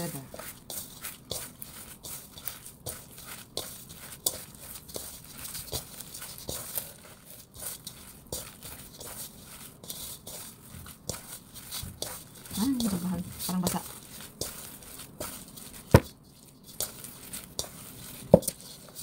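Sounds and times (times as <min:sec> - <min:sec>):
sticky dough squishes and taps: 0:10.3 - 0:16.2, 0:16.8 - 0:18.6.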